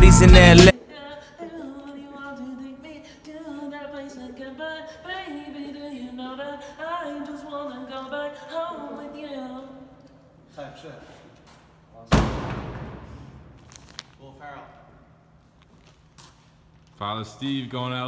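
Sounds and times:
hip-hop track: 0.0 - 0.7
person singing unaccompanied: 0.0 - 9.8.

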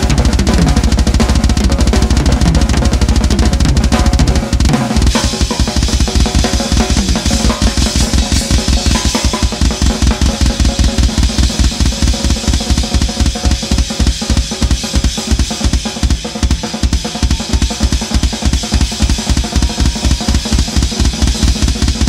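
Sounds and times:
fast bass drum strokes: 0.0 - 22.0.

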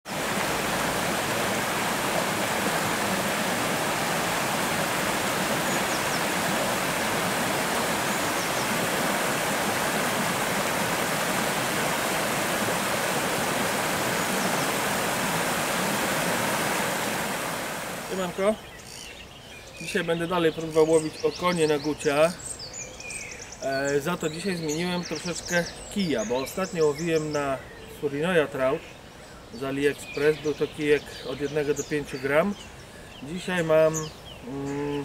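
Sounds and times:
stream rushing over stones: 0.1 - 18.6.

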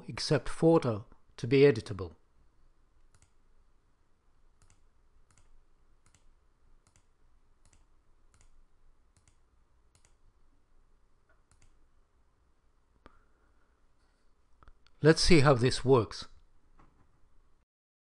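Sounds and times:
faint computer mouse clicks: 3.1 - 3.4, 4.6 - 10.2, 11.3 - 11.8.

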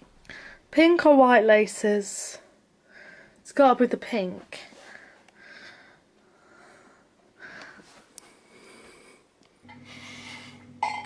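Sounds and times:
faint breathing: 0.2 - 0.7, 2.8 - 3.4, 4.7 - 10.7.

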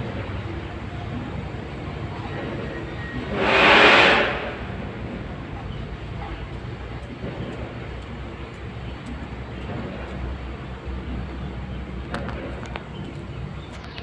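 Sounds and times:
low rumble: 3.2 - 6.0.

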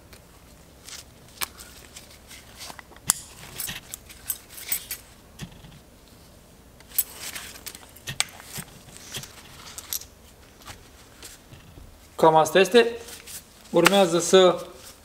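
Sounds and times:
rustling: 0.1 - 12.2, 13.0 - 15.0.

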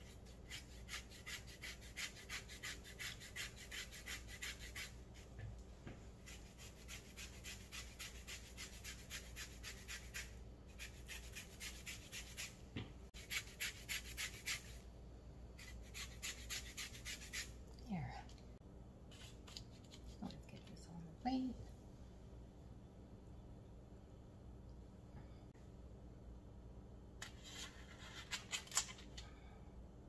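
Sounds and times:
lemon rind scraping on grater: 0.0 - 4.9, 6.3 - 12.5, 15.6 - 17.5.

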